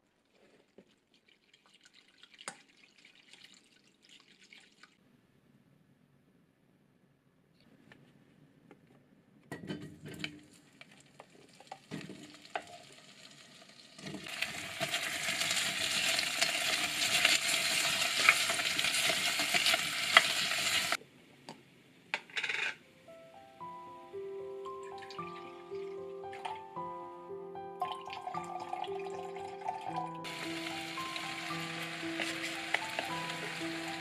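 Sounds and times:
vegetables sizzling in hot oil: 0:11.5 - 0:21.0, 0:30.2 - 0:34.0
wooden spatula stirring: 0:30.3 - 0:34.0.

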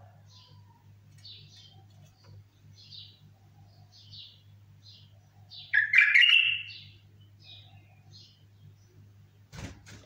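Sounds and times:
steady low hum: 0:00.0 - 0:05.8, 0:06.6 - 0:10.0
bulbul chirping and whistling: 0:05.7 - 0:06.9.

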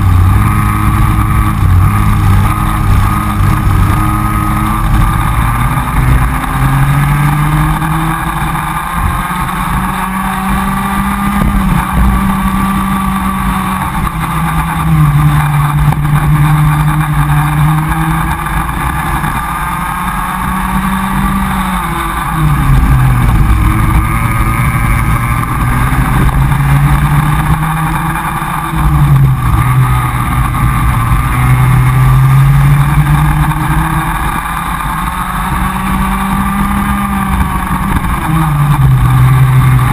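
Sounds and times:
kart engine racing: 0:00.0 - 0:39.9.

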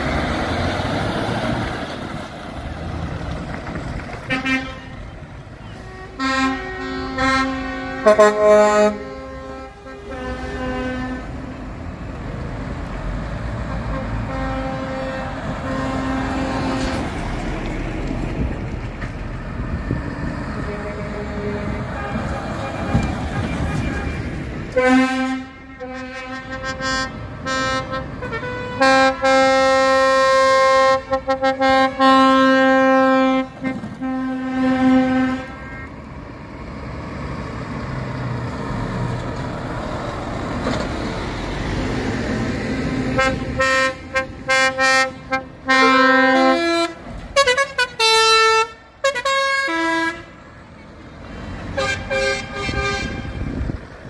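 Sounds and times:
diesel truck driving past: 0:00.0 - 0:54.0
lorry air horns: 0:04.3 - 0:11.6, 0:13.8 - 0:17.0, 0:20.6 - 0:24.2, 0:24.8 - 0:35.9, 0:43.1 - 0:50.3, 0:51.8 - 0:53.6.

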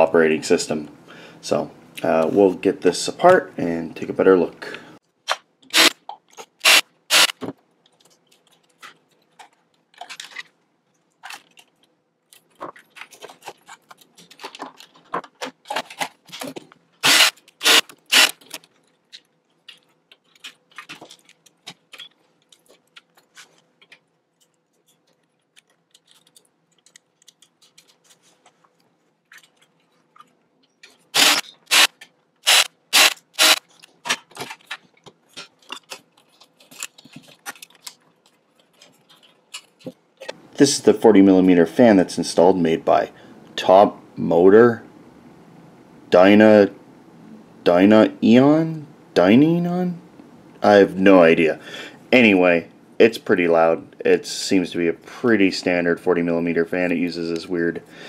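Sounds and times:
cordless drill bursts: 0:05.7 - 0:06.0, 0:06.6 - 0:07.4, 0:17.0 - 0:18.4, 0:31.2 - 0:33.6
screws and metal parts clinking: 0:15.7 - 0:28.2.

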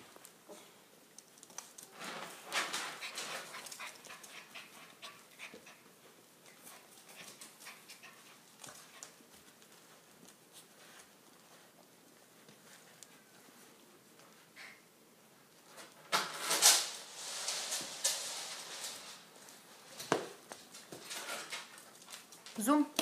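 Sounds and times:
puppy scuffling: 0:00.0 - 0:14.8, 0:15.4 - 0:23.0.

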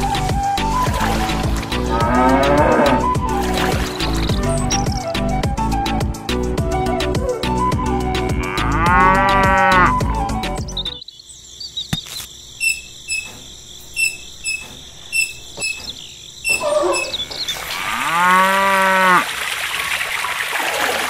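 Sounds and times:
background music: 0:00.0 - 0:11.0
cow mooing: 0:01.8 - 0:03.1, 0:08.3 - 0:10.0, 0:16.5 - 0:19.3.

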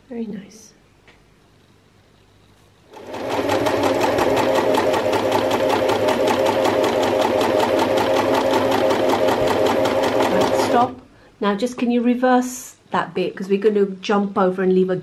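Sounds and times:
sewing machine clattering: 0:03.0 - 0:10.9.

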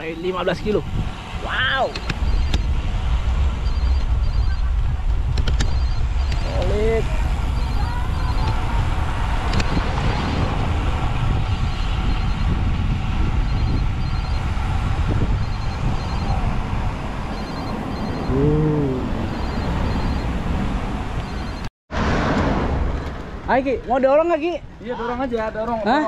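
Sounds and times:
bike tyre and road noise: 0:00.0 - 0:26.0
wind rushing over microphone: 0:00.0 - 0:26.0
short voiced sound: 0:18.3 - 0:19.3.

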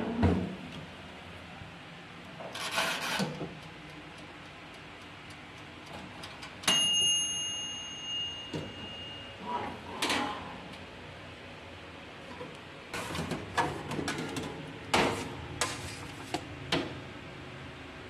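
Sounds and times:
timer bell ding: 0:06.7 - 0:09.4.

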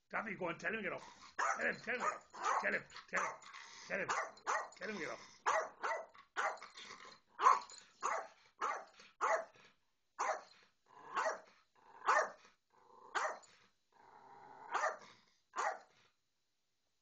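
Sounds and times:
small dog barking: 0:01.4 - 0:03.4, 0:04.1 - 0:04.8, 0:05.4 - 0:06.6, 0:07.4 - 0:09.5, 0:10.2 - 0:10.5, 0:11.1 - 0:11.4, 0:12.0 - 0:12.4, 0:13.1 - 0:13.4, 0:14.7 - 0:15.0, 0:15.6 - 0:15.9.

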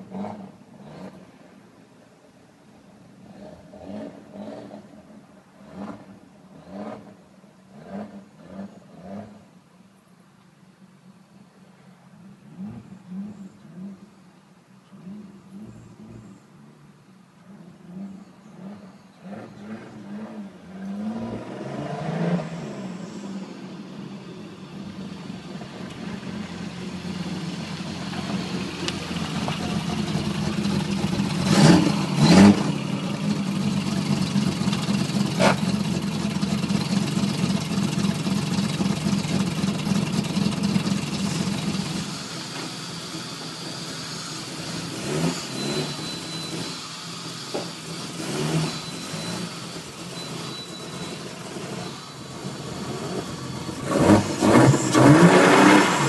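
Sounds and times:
car engine starting and running: 0:00.0 - 0:10.9, 0:11.5 - 0:56.0.

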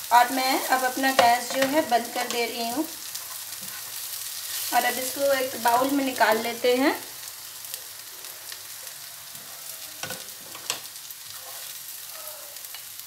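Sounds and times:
food sizzling in a wok: 0:00.0 - 0:13.0
spatula scraping a pan: 0:00.8 - 0:05.1, 0:09.3 - 0:12.8.

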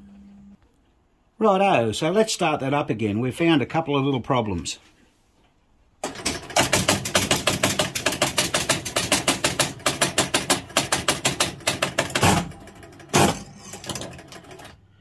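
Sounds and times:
pinball score reels clicking: 0:06.0 - 0:14.8.

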